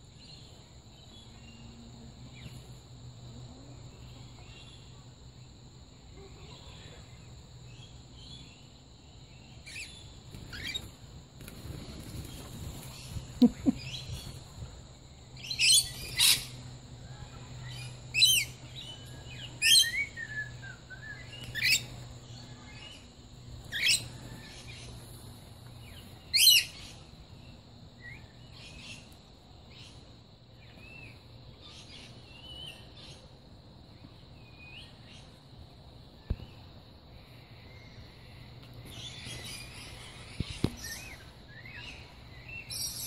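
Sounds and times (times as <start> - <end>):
soft bird chirps: 9.4 - 11.0.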